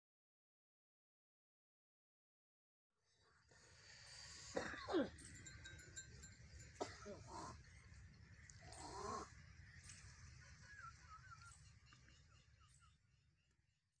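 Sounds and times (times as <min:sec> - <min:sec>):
wavering bird chirps: 0:03.7 - 0:13.1.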